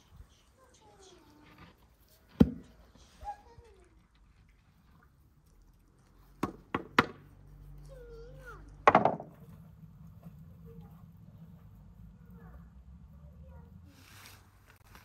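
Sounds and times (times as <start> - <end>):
hard wooden knocks: 8.8 - 9.4.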